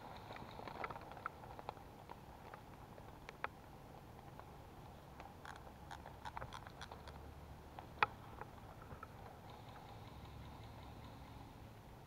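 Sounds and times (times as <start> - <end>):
low steady background noise: 0.0 - 12.0
sharp clicks and snaps: 5.2 - 11.2.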